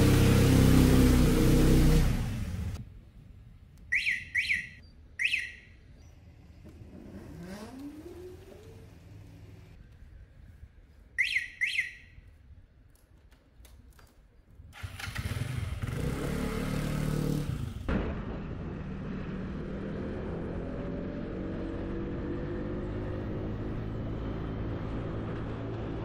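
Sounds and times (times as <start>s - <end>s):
motor scooter engine: 0.0s - 2.8s, 6.4s - 9.7s, 14.8s - 17.9s
road and wind noise: 0.0s - 26.0s.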